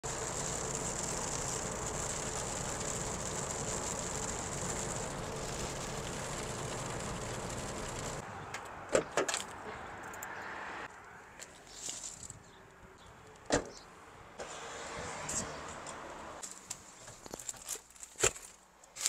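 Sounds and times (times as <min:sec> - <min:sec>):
tyre and rain noise: 0:00.0 - 0:08.2.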